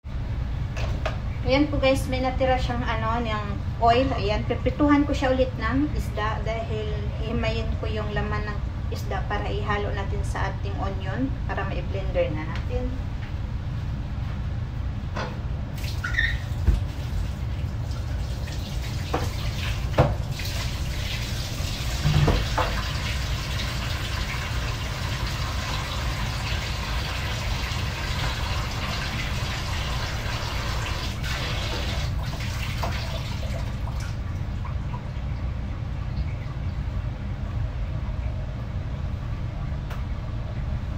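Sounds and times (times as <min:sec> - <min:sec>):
water boiling in a pot: 0:15.7 - 0:39.3.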